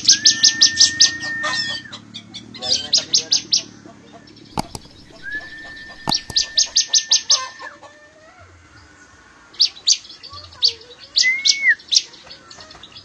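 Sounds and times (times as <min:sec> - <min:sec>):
bird long held whistle: 0:00.0 - 0:01.9, 0:05.0 - 0:07.8, 0:11.2 - 0:11.9
songbirds chirping: 0:00.0 - 0:13.0
sharp clicks: 0:04.6 - 0:06.8.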